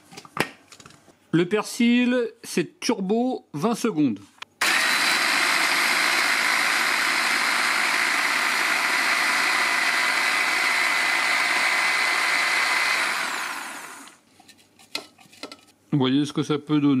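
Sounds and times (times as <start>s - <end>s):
hand blender motor whining: 4.6s - 14.2s.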